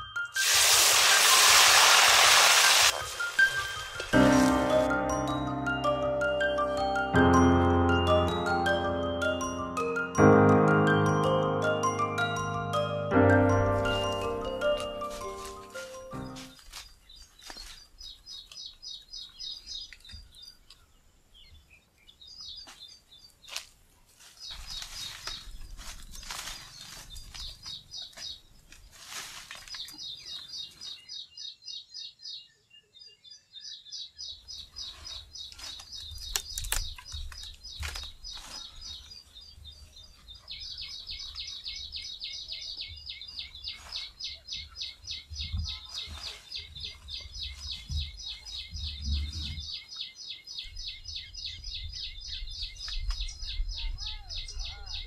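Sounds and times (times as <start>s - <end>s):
birds chirping in fast trills: 30.0s - 55.0s.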